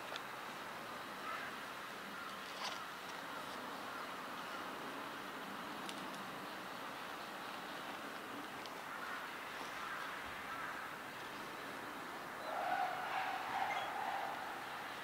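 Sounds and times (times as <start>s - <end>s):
steady outdoor hiss: 0.0s - 15.0s
faint clicks: 5.8s - 6.3s
distant bird calls: 8.7s - 15.0s.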